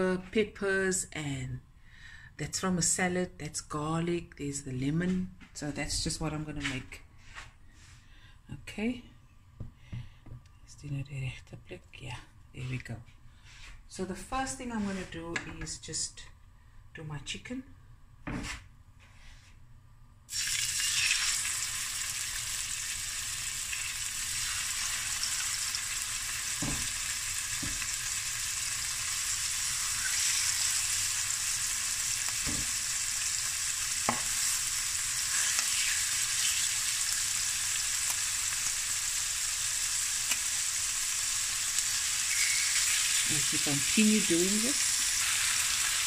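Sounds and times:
chicken sizzling in hot oil: 20.3s - 46.0s.

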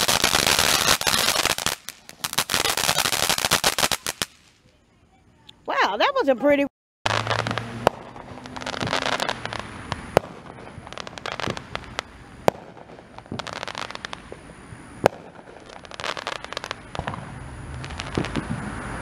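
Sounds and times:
firework bangs: 0.0s - 4.7s, 7.1s - 19.0s
fireworks crackling: 0.0s - 5.4s, 7.1s - 19.0s.

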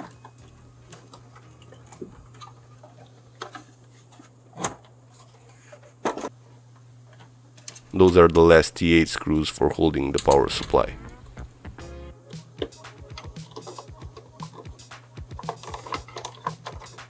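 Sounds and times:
steady low hum: 7.9s - 15.4s.

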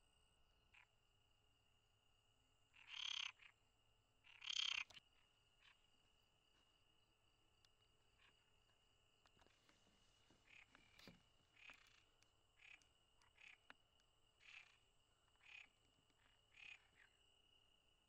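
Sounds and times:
frog croaking: 0.7s - 1.0s, 2.7s - 3.6s, 4.2s - 5.9s, 8.2s - 8.6s, 10.4s - 13.8s, 14.4s - 17.2s
high insect trill: 2.7s - 3.6s, 4.2s - 9.6s
short animal calls: 2.8s - 3.5s, 4.2s - 5.0s.

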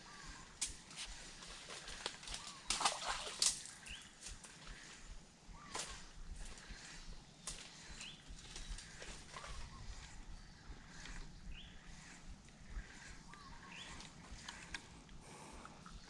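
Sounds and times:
bird chirps: 5.5s - 16.0s.

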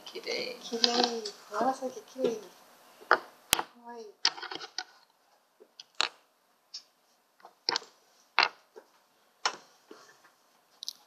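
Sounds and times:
plastic pots clicking and knocking: 6.8s - 9.7s.

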